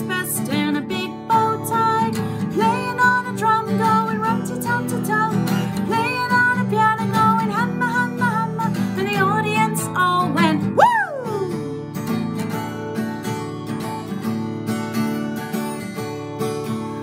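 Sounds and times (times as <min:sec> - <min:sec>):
woman singing: 0:00.0 - 0:12.1
strummed acoustic guitar: 0:00.0 - 0:17.0.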